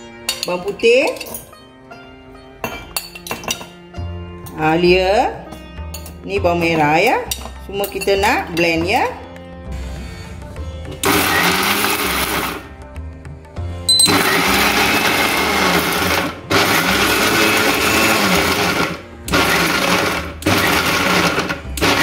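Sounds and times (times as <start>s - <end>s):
mixer grinder grinding: 11.0s - 12.7s, 13.9s - 22.0s.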